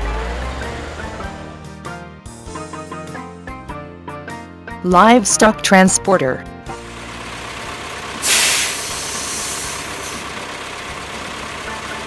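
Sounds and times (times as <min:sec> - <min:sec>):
truck diesel engine idling: 0:06.7 - 0:12.0
air brakes hissing: 0:08.2 - 0:10.3.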